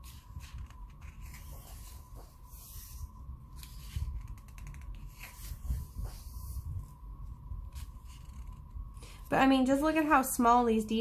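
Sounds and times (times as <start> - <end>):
paper pages rustling: 0.0 - 3.0, 3.6 - 6.6.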